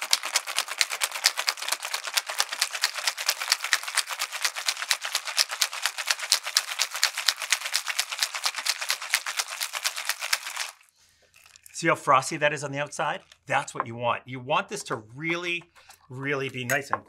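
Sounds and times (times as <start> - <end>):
ice rattling in cocktail shaker: 0.0 - 11.8, 13.1 - 13.5.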